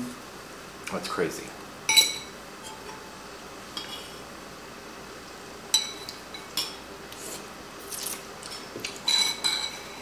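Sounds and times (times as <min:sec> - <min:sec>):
utensils clinking on ceramic bowls: 0:01.9 - 0:03.0, 0:08.4 - 0:10.0.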